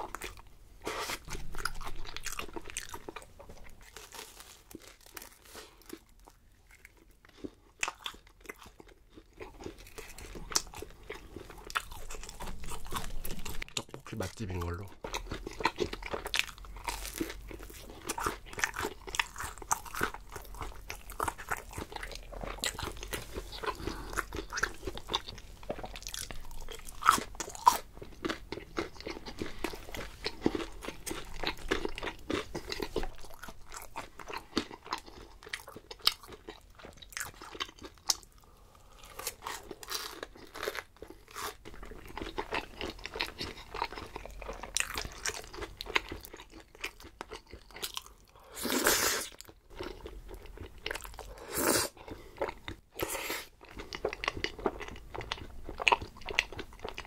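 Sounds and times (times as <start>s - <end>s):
person eating crunchy food: 0.0s - 57.0s
crisp crackles: 3.8s - 6.2s.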